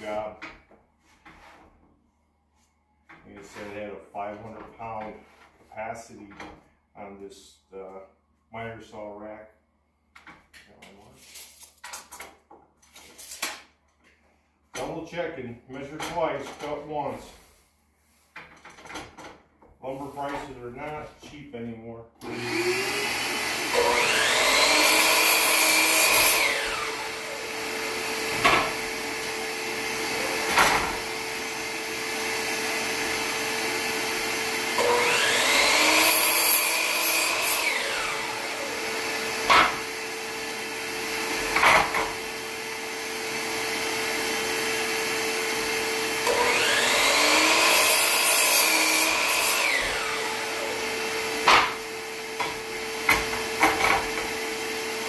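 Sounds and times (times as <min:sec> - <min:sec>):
miter saw cutting wood: 0:22.2 - 0:55.0
shop vacuum humming: 0:22.2 - 0:55.0.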